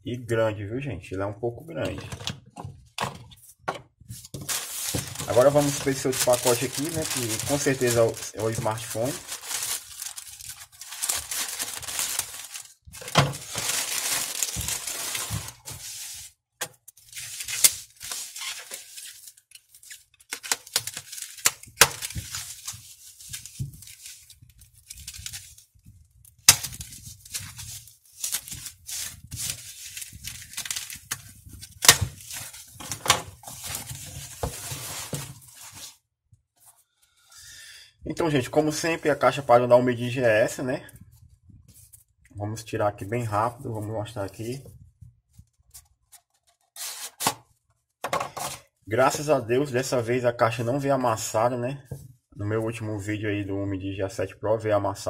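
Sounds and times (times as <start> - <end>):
plastic packaging rustling: 3.4 - 36.0.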